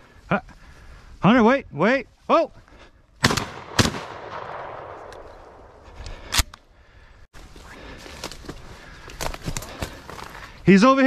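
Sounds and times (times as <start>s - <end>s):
shotgun firing: 3.2s - 5.6s
gunshot echo: 3.2s - 5.8s.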